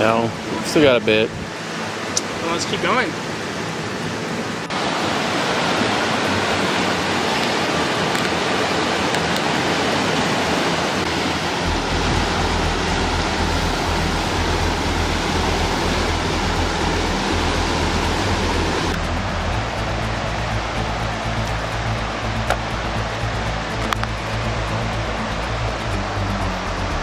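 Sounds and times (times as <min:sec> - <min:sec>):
rushing mountain creek: 0:00.0 - 0:27.0
deep steady rumble: 0:11.0 - 0:27.0.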